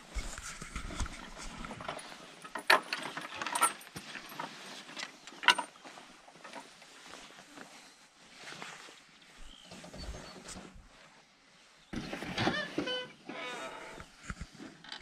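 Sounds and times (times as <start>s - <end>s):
wooden gate rattling: 1.6s - 5.8s.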